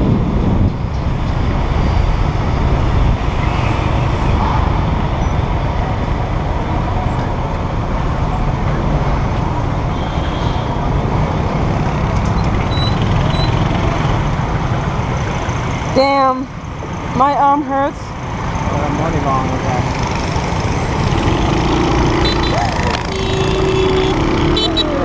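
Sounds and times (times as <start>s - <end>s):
road and wind noise: 0.0s - 25.0s
surrounding traffic: 0.0s - 25.0s
scooter engine: 19.9s - 25.0s.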